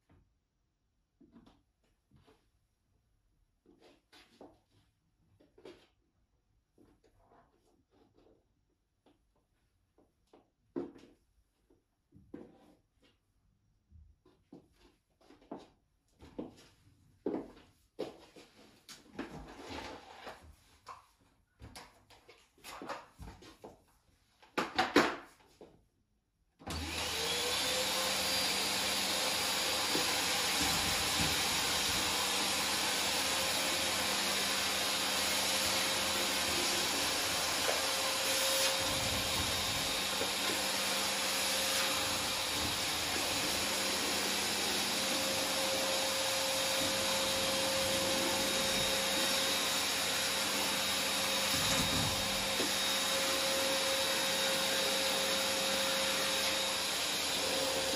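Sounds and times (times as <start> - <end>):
vacuum cleaner motor running: 26.6 - 57.9.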